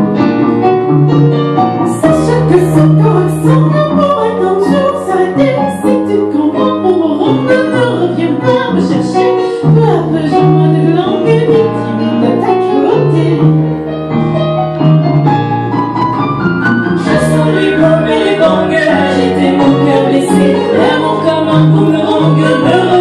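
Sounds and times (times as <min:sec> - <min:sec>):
women singing into microphones: 0:01.9 - 0:13.6, 0:17.0 - 0:23.0
upright double bass line: 0:09.8 - 0:23.0.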